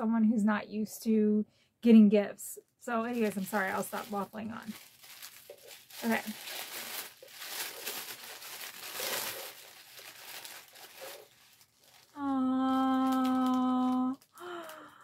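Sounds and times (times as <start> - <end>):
paper crinkling and tearing: 3.1 - 14.8.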